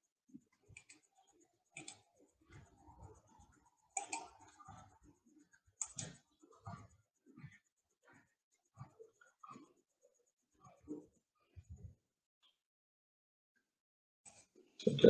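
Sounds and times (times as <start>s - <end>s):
mouse and keyboard clicks: 0.6s - 1.1s, 1.7s - 4.9s, 5.8s - 6.9s.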